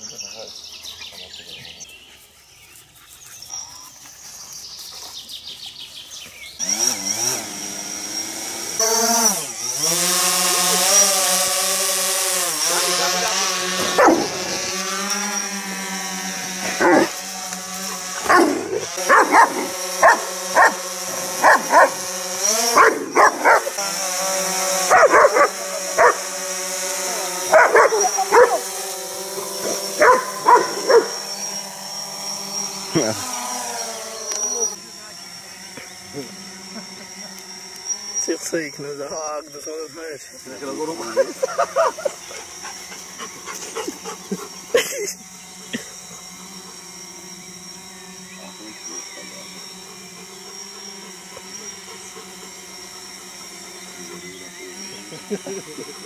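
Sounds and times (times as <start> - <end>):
drone propellers buzzing: 0.0 - 56.0
dog barking: 13.8 - 14.4, 18.2 - 20.8, 21.4 - 22.0, 22.7 - 23.8, 24.9 - 26.2, 27.5 - 28.6, 29.6 - 31.2.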